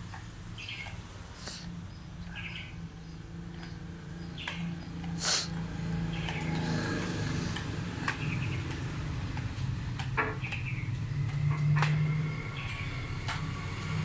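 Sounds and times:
low engine hum: 0.0 - 14.0
sharp clicks: 7.4 - 14.0.

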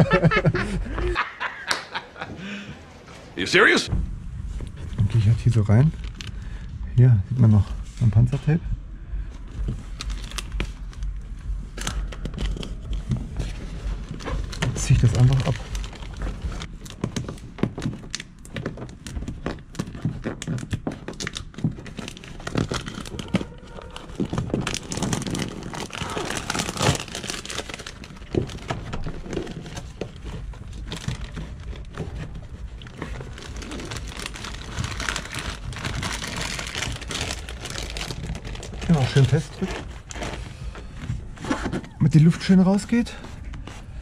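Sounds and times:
backing film crinkling: 9.5 - 44.0.

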